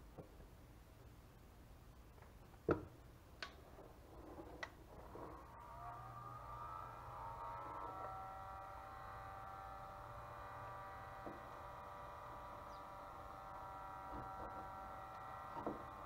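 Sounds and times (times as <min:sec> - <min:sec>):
heat gun fan whining: 0:04.9 - 0:16.0.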